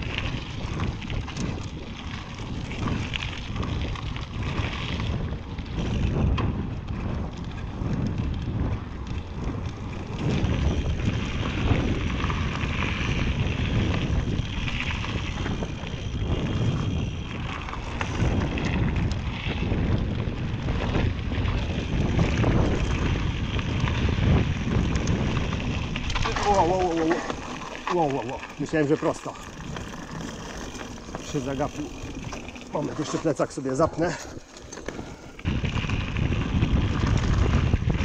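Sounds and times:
bike clicks and rattles: 0.0s - 38.0s
wind on microphone: 0.0s - 38.0s
tyres rumbling on dirt: 7.3s - 38.0s.

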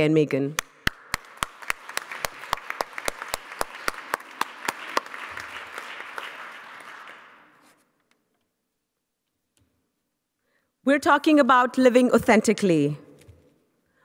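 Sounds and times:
loud close hand claps: 0.6s - 7.7s
audience applause: 0.9s - 7.6s.

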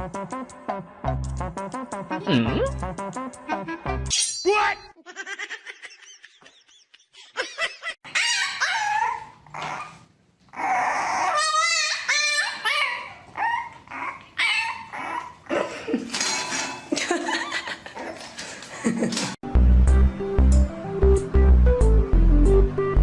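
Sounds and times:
dogs whining and yipping: 8.0s - 15.5s.

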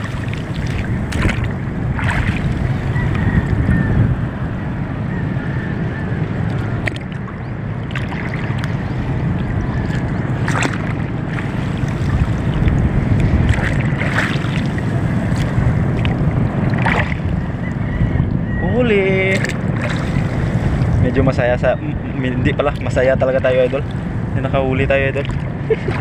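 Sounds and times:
short sharp splashes: 0.0s - 2.6s, 9.9s - 12.8s, 13.4s - 15.5s, 16.7s - 17.2s
water lapping: 0.0s - 3.7s, 6.4s - 26.0s
wind buffeting the microphone: 0.0s - 26.0s.

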